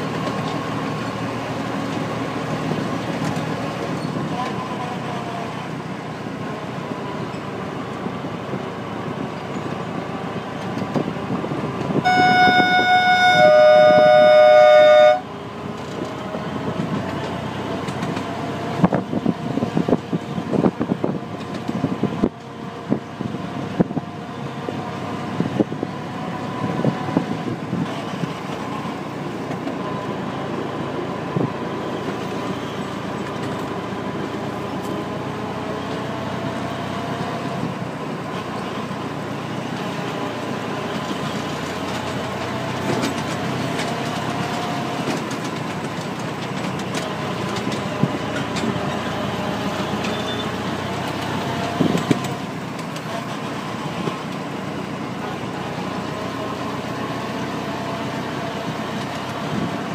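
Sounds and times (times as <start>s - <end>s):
miniature locomotive running on track: 0.0s - 59.9s
locomotive horn: 11.9s - 15.4s.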